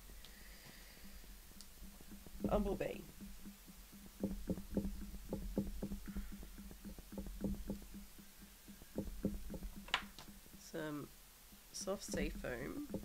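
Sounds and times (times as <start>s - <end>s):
brush dabbing on cardstock: 11.6s - 13.0s.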